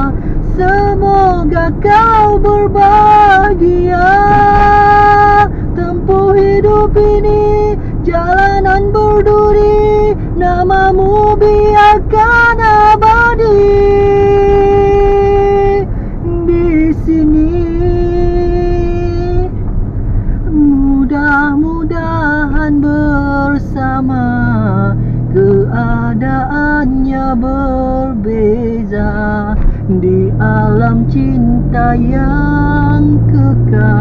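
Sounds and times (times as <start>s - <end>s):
high voice singing: 0.0s - 9.7s, 30.0s - 34.0s
car rumbling on the move: 0.0s - 34.0s.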